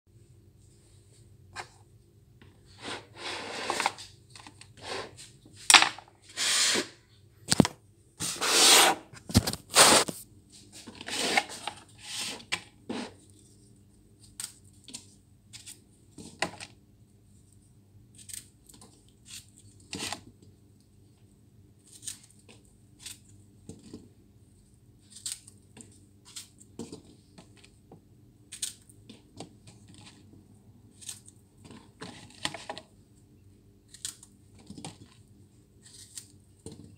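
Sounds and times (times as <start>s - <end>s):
paring knife scraping: 11.0s - 13.2s.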